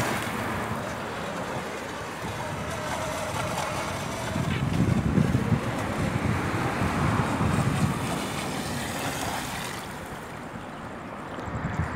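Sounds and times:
electric boat motor: 0:00.0 - 0:09.5
water spray from hull: 0:00.0 - 0:11.3
wind buffeting microphone: 0:00.0 - 0:11.9.

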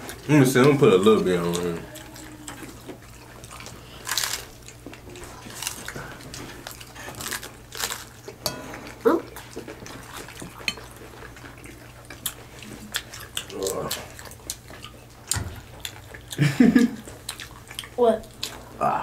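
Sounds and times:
chewing: 0:00.0 - 0:18.8
taco shells crunching: 0:00.1 - 0:18.6.

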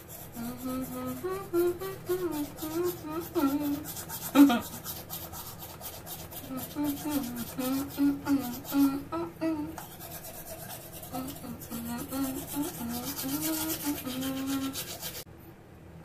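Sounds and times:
toothbrush scrubbing teeth: 0:00.0 - 0:09.0, 0:09.8 - 0:15.3
person humming a tune: 0:00.3 - 0:04.9, 0:06.4 - 0:09.8, 0:11.0 - 0:15.2.

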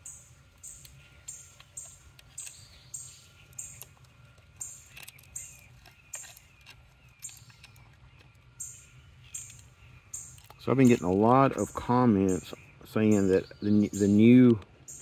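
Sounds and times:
insect buzzy chirping: 0:00.0 - 0:03.9
faint bird chirps: 0:00.0 - 0:15.0.

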